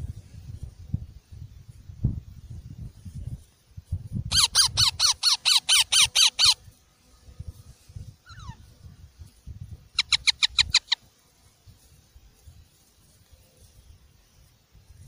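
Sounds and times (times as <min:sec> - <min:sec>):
parakeet chicks squawking: 0:04.3 - 0:06.6, 0:10.0 - 0:11.0.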